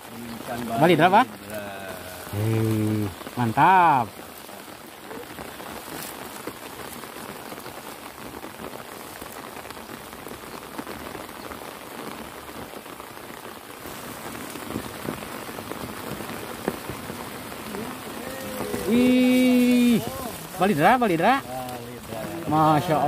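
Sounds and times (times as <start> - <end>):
heavy rain falling: 0.0 - 23.0.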